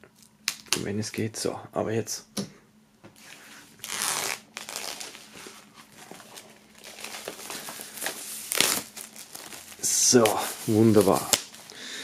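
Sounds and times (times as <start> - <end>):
plastic shrink-wrap crinkling: 3.8 - 11.8.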